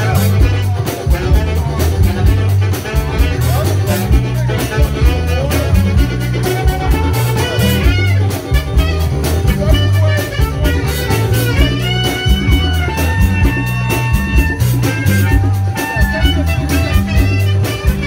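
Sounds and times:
bass line: 0:00.0 - 0:18.0
drum beat: 0:00.0 - 0:18.0
saxophone soloing: 0:00.0 - 0:18.0.

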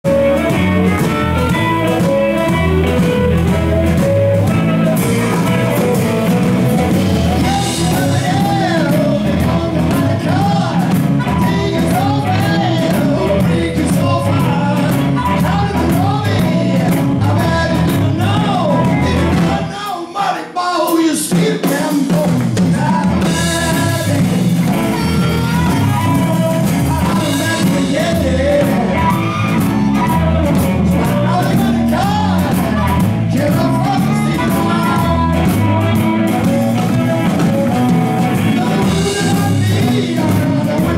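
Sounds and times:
electric bass: 0:00.0 - 0:19.7, 0:22.2 - 0:40.9
electric guitar: 0:00.0 - 0:19.9, 0:21.4 - 0:40.9
drum kit: 0:00.0 - 0:40.9
amplified harmonica: 0:00.1 - 0:09.7, 0:23.5 - 0:40.7
person singing: 0:00.1 - 0:40.9.

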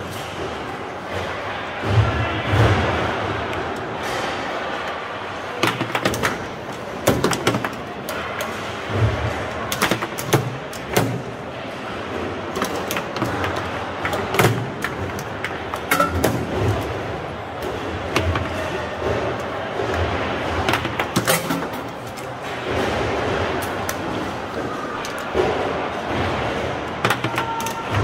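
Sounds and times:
background noise: 0:00.0 - 0:28.0
foosball ball clacking: 0:05.6 - 0:11.4, 0:12.1 - 0:24.3, 0:25.1 - 0:28.0.

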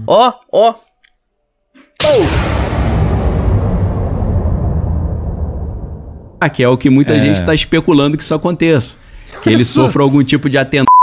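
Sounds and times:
boom impact with falling tone: 0:02.0 - 0:06.7
hissing rumble: 0:02.2 - 0:07.0.

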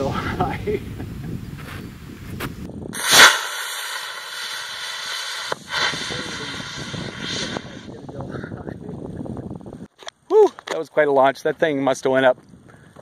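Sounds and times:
rocket motor whoosh and hiss: 0:03.0 - 0:08.0.

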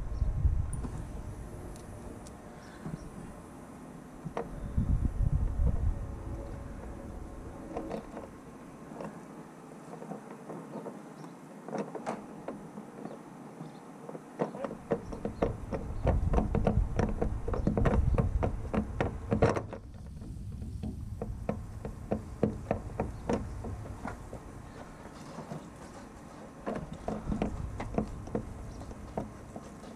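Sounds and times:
low rumble: 0:00.0 - 0:03.4, 0:04.5 - 0:08.5.

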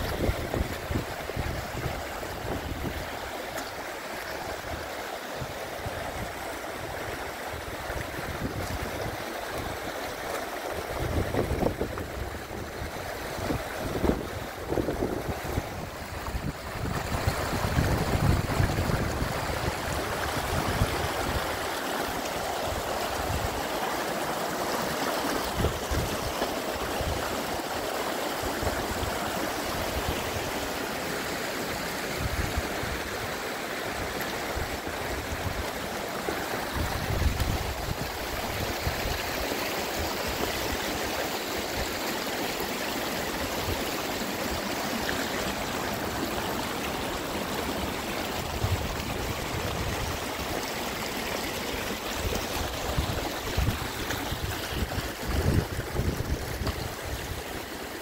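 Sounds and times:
wind buffeting microphone: 0:00.0 - 0:03.2, 0:10.8 - 0:21.7, 0:36.6 - 0:39.3, 0:52.0 - 0:57.5
water rushing over stones: 0:00.0 - 0:58.0.

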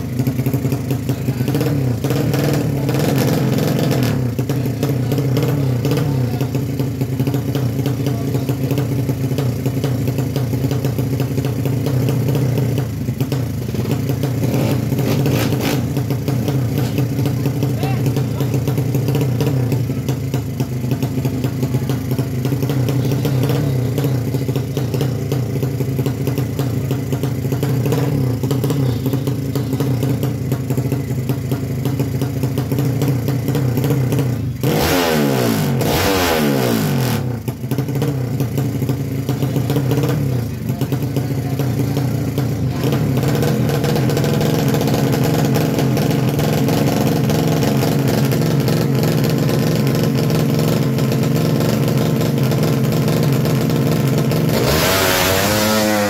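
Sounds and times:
motorcycle engine running loudly: 0:00.0 - 0:56.0
engine pitch sweeping downward: 0:54.5 - 0:56.0.

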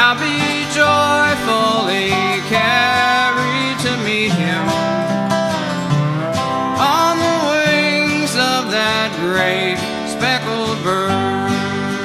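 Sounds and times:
acoustic guitar rhythm: 0:00.0 - 0:12.0
dobro sliding lead: 0:00.4 - 0:06.7.

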